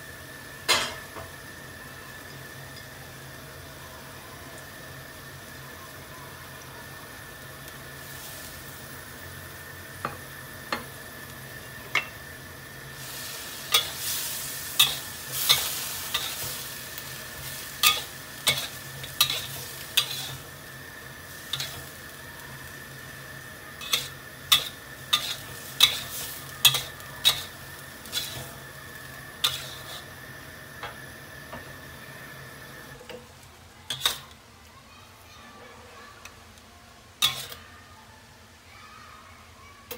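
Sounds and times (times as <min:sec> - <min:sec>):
food sizzling in a wok: 0:00.0 - 0:38.7
metal spatula clanking on wok: 0:23.8 - 0:27.5, 0:37.2 - 0:37.6.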